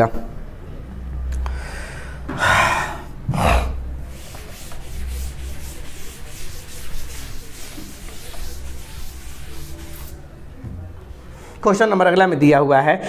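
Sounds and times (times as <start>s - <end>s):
duster wiping chalkboard: 4.0s - 10.3s.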